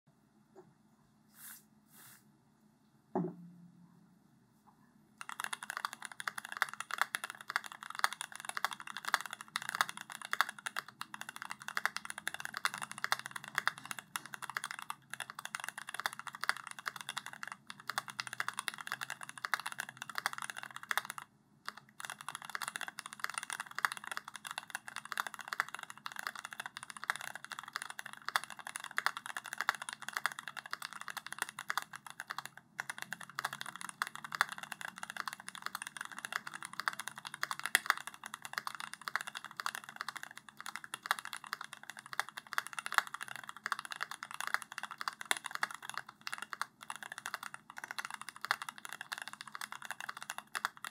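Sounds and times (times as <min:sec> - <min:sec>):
fast mechanical keyboard typing: 0:05.2 - 0:50.9.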